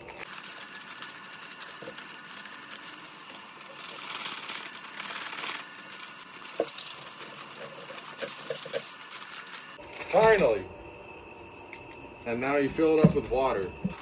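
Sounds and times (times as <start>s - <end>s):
plastic sleeve crinkling: 0.2s - 10.3s.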